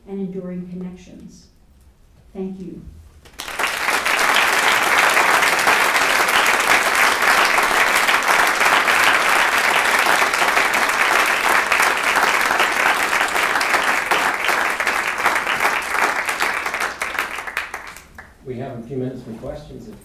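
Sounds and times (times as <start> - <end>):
audience applauding: 3.3 - 18.4.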